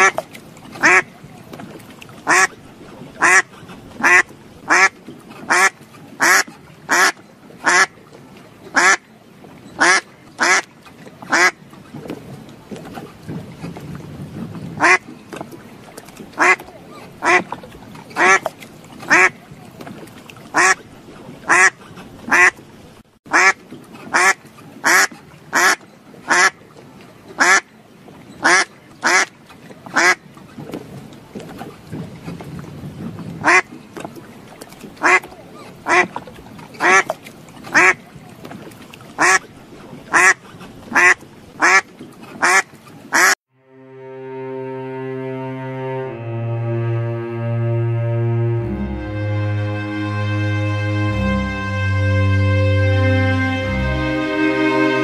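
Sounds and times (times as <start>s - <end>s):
duck quacking: 0.8s - 1.1s, 2.3s - 2.5s, 3.2s - 4.9s, 5.5s - 7.9s, 8.8s - 9.0s, 9.8s - 10.6s, 11.3s - 11.6s, 14.8s - 15.0s, 16.4s - 16.6s, 17.2s - 17.5s, 18.2s - 18.5s, 19.1s - 19.4s, 20.6s - 20.8s, 21.5s - 22.5s, 23.3s - 26.5s, 33.4s - 33.6s, 35.0s - 35.3s, 35.9s - 36.1s, 36.8s - 37.1s, 37.8s - 38.0s, 39.2s - 39.4s, 40.1s - 41.8s, 42.4s - 43.4s.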